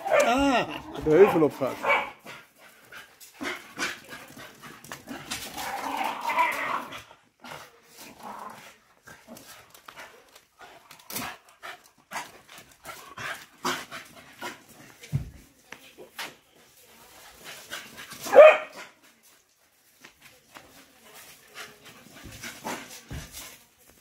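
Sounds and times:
dogs playing noisily: 0.0 - 24.0
claws clicking and scrabbling: 4.5 - 6.8.

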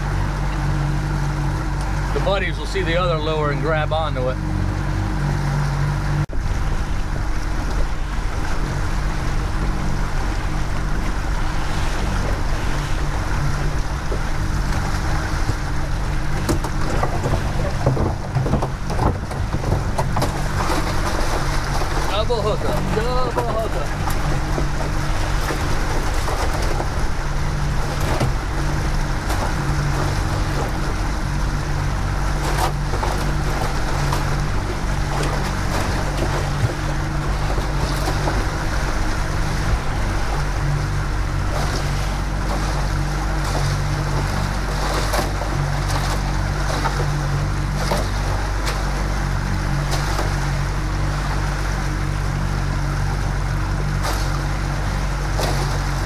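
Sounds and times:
outboard motor running: 0.0 - 56.0
water rushing: 0.0 - 56.0.

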